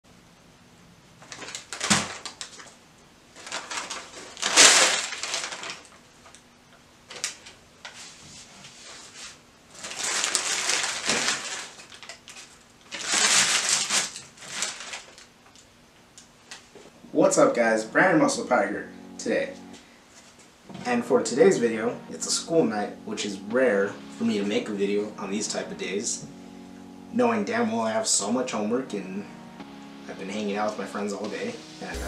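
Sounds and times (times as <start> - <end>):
paper bag and wrapper crinkling: 1.2 - 2.8, 3.4 - 6.3, 9.7 - 15.4.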